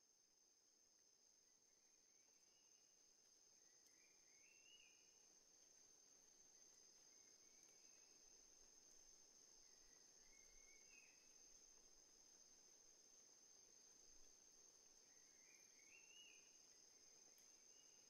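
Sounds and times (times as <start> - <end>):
crickets trilling: 2.1 - 18.0
faint chirps: 3.6 - 5.3, 9.6 - 11.4, 15.0 - 18.0.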